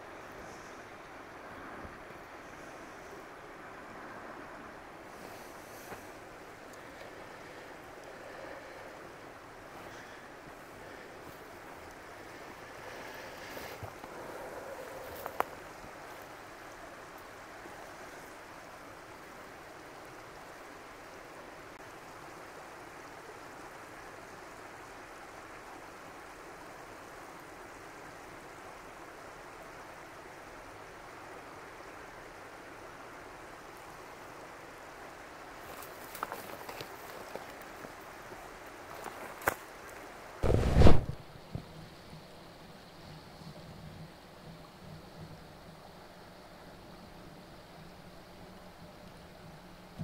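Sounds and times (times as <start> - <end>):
running water rushing: 0.0 - 50.0.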